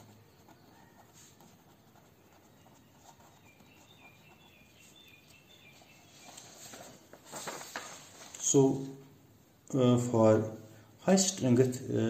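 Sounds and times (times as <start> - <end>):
faint high chirps: 0.0 - 6.7.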